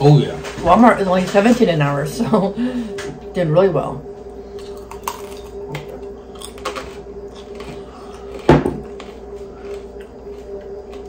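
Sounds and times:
steady low hum: 0:00.0 - 0:11.0
crunchy pizza chewing: 0:04.5 - 0:11.0.

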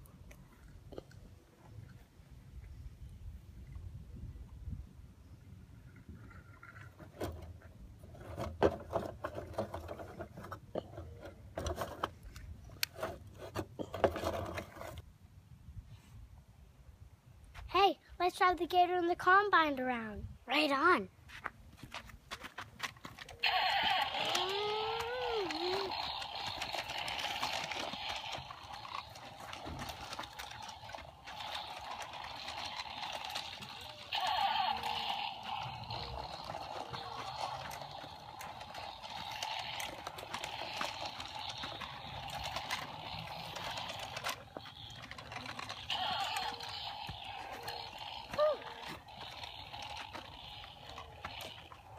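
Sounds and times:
children making engine noises: 0:23.4 - 0:44.0, 0:44.9 - 0:51.9.

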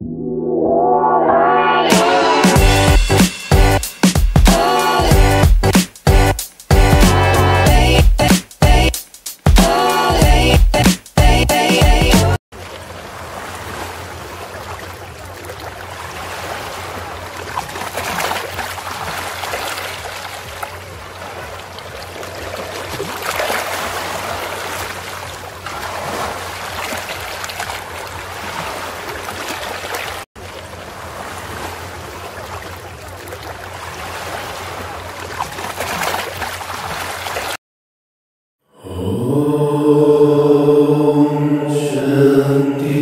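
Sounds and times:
running water rushing: 0:12.6 - 0:37.6
low hum: 0:38.8 - 0:43.0.

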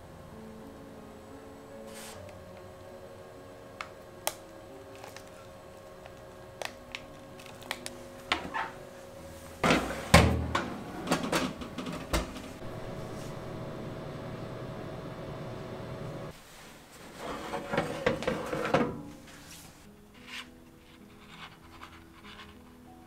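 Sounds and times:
oven door shutting: 0:09.6 - 0:14.3
metal baking tray clattering: 0:17.2 - 0:19.1.

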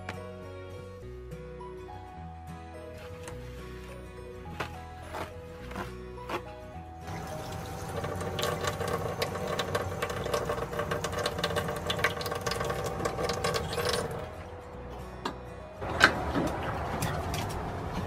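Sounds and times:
paper towel crinkling: 0:02.9 - 0:06.6
faucet water splashing into sink: 0:07.1 - 0:14.2.

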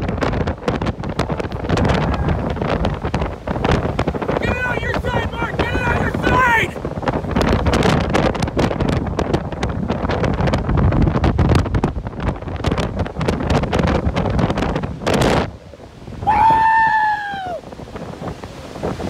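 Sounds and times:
rain taps: 0:00.0 - 0:06.2
storm wind buffeting microphone: 0:00.0 - 0:19.0.

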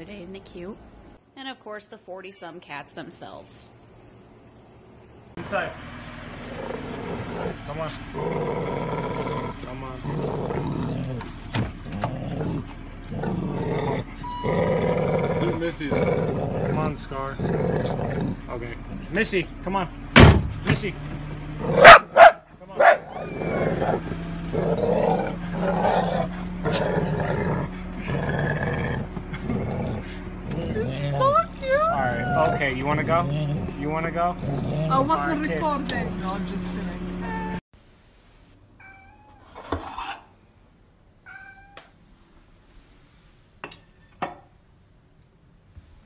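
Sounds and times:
dog grumbling: 0:06.4 - 0:18.5, 0:21.6 - 0:22.1, 0:23.0 - 0:36.1
cat meowing: 0:38.8 - 0:39.6, 0:41.2 - 0:41.9.

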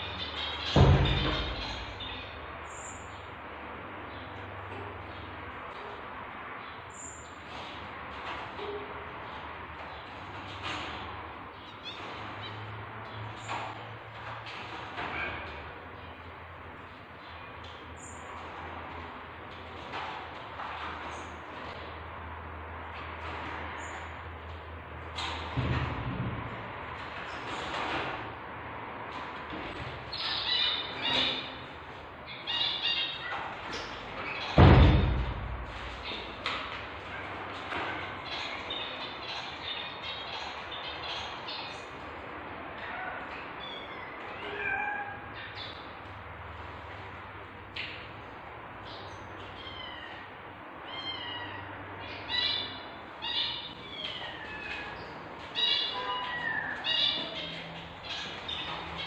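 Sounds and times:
loud thump: 0:34.6 - 0:36.0.

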